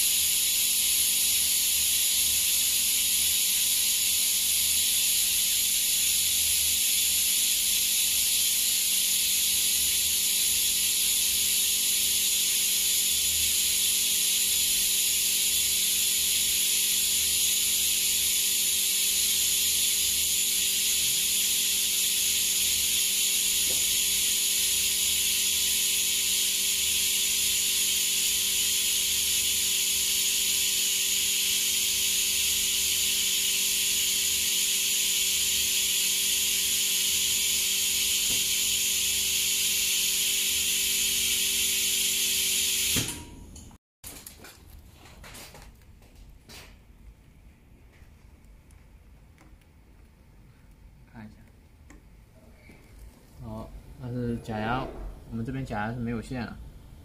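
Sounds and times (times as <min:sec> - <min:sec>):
machine hissing at idle: 0:00.0 - 0:43.3.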